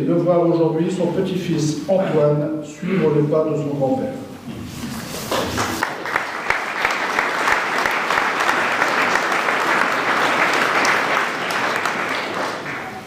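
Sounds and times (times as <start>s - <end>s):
audience applauding: 5.3s - 13.0s.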